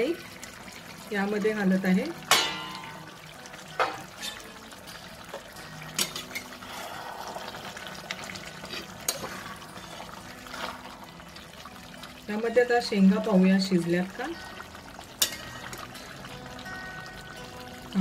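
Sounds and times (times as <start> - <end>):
spatula clinking and scraping pan: 2.2 - 3.1, 3.7 - 4.6, 5.9 - 6.6, 8.3 - 10.8, 15.1 - 16.1
spatula stirring liquid curry: 7.6 - 12.2.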